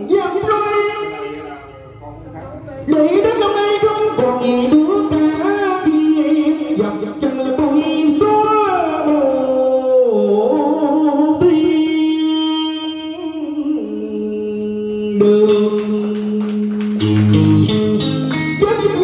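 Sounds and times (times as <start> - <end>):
man singing long held notes: 2.9 - 19.0
bass notes: 16.9 - 19.0
guitar playing plucked melody: 17.0 - 19.0.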